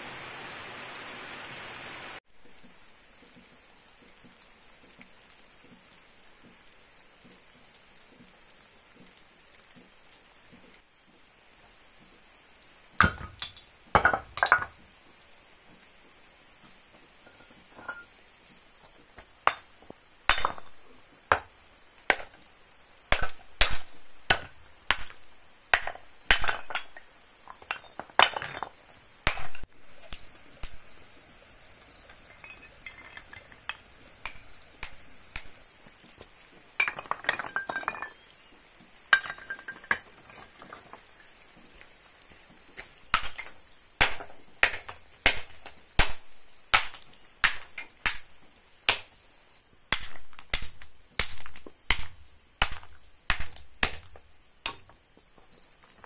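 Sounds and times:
insects chirring: 0.0s - 56.0s
hammer knocking stone: 13.0s - 14.8s, 20.3s - 21.5s, 22.1s - 22.4s, 23.1s - 30.8s, 32.2s - 35.5s, 36.8s - 38.2s, 39.1s - 41.0s, 43.1s - 48.2s, 48.9s - 49.2s, 49.9s - 55.0s
stone clinking on stone: 13.0s - 14.9s, 17.2s - 18.2s, 19.2s - 21.5s, 23.1s - 30.8s, 31.8s - 35.6s, 36.7s - 38.5s, 39.1s - 41.3s, 42.8s - 46.2s.

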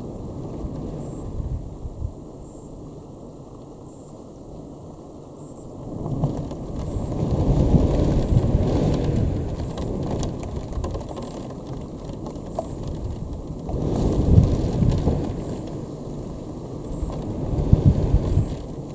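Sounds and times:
thunder rumbling: 5.9s - 18.9s.

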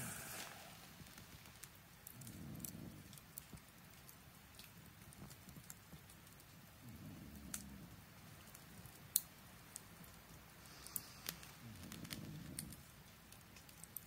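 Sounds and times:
faint low rumble: 0.0s - 4.1s, 5.0s - 9.0s, 11.1s - 13.2s
campfire crackling: 0.0s - 14.0s
sharp pops from fire: 0.0s - 14.0s.

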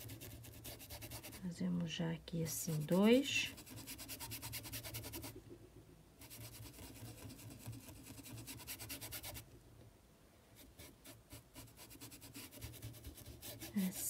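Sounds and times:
brush scratching fabric: 0.0s - 1.5s, 2.5s - 5.4s, 6.2s - 9.4s, 10.6s - 14.0s.

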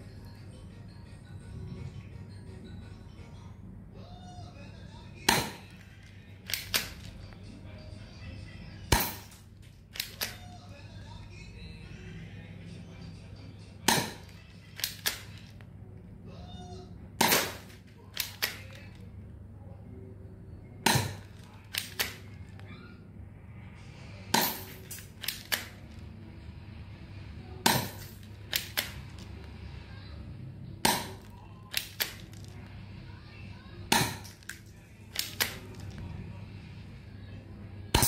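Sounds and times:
airsoft pistol shots: 8.9s - 10.4s, 13.9s - 15.3s, 17.2s - 18.7s, 20.8s - 22.2s, 27.6s - 29.0s, 30.8s - 32.2s, 33.9s - 34.3s.

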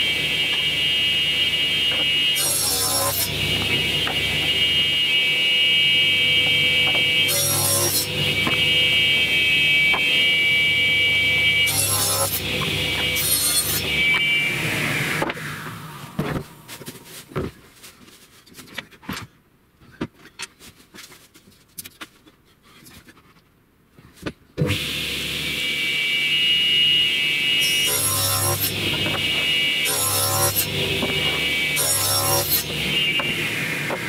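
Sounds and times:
table saw whine: 0.0s - 16.9s, 24.6s - 34.0s.

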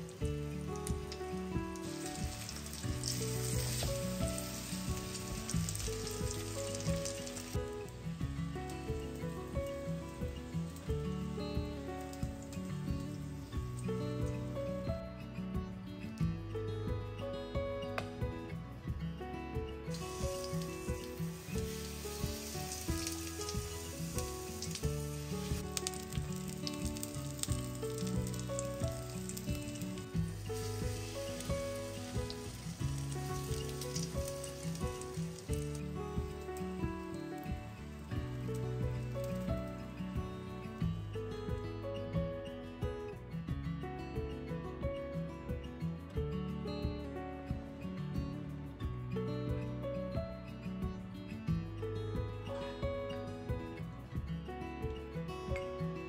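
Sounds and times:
food sizzling in hot oil: 0.0s - 14.5s, 19.9s - 41.1s
background music: 0.0s - 56.0s.

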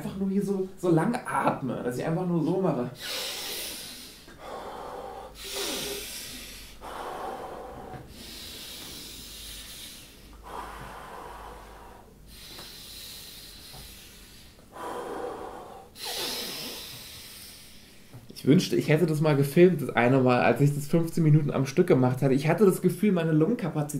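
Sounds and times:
man breathing forcefully: 3.0s - 18.2s.

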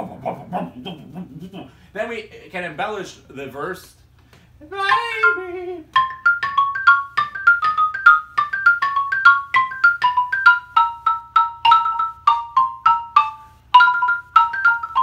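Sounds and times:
xylophone melody: 4.8s - 15.0s.

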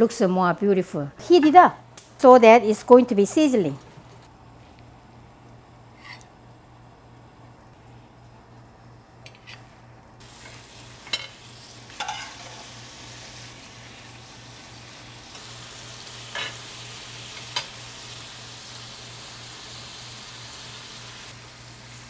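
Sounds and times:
sauce sizzling on hot plate: 10.2s - 22.0s.

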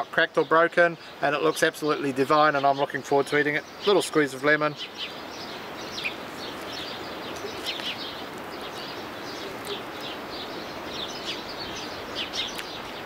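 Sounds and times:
small birds chirping: 0.0s - 13.0s
steady background hiss: 0.0s - 13.0s.

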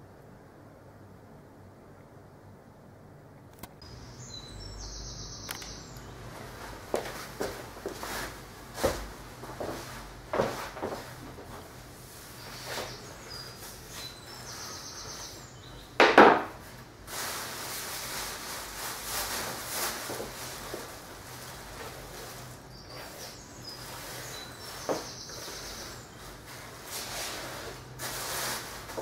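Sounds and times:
brush sweeping wooden floor: 6.3s - 15.4s, 16.6s - 29.0s
plastic bag rustling: 16.5s - 29.0s.

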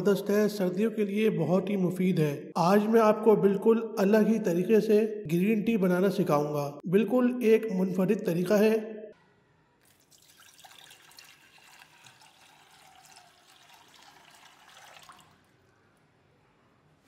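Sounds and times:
faint liquid pouring: 9.8s - 16.0s.

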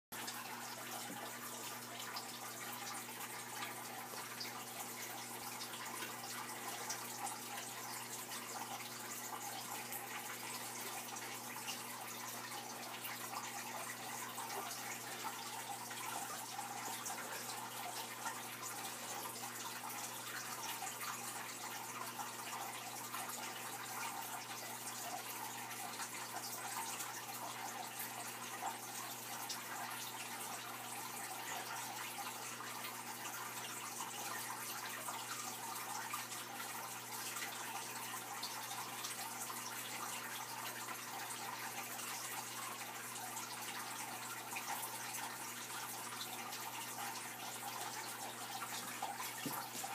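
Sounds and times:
aquarium water trickling: 0.1s - 49.9s.

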